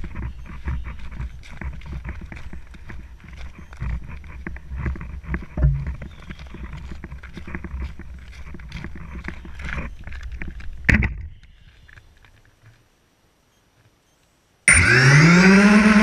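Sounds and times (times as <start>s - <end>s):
footsteps crunching through snow: 0.0s - 10.8s
wind rumbling on microphone: 0.0s - 12.7s
handling knocks: 5.6s - 6.1s.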